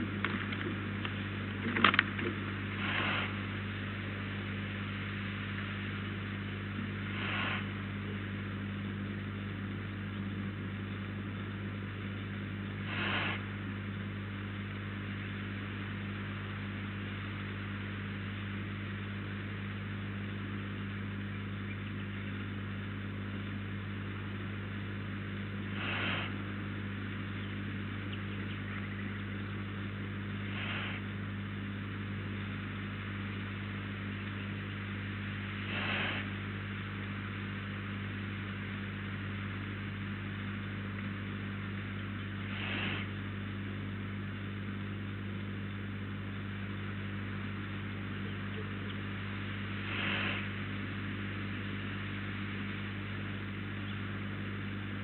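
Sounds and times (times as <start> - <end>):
low electrical hum with hiss: 0.0 - 55.0
short hissing sounds: 2.7 - 3.6, 7.0 - 7.9, 12.8 - 13.5, 25.7 - 26.5, 30.5 - 31.1, 35.6 - 36.4, 42.4 - 43.2, 49.8 - 50.6.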